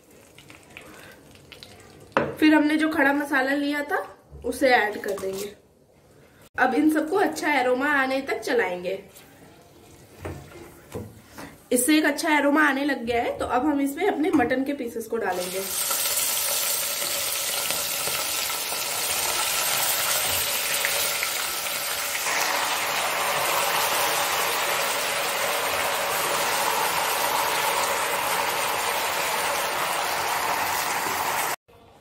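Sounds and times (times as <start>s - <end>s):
meat sizzling in hot oil: 15.3s - 31.6s.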